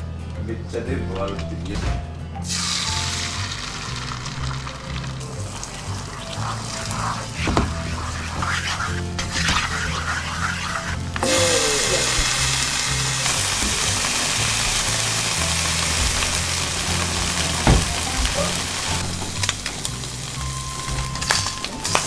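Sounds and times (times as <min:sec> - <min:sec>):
background music with bass line: 0:00.0 - 0:22.0
bacon sizzling in a pan: 0:02.4 - 0:22.0
chopsticks stirring in a pan: 0:06.2 - 0:12.6
knock: 0:17.6 - 0:18.2.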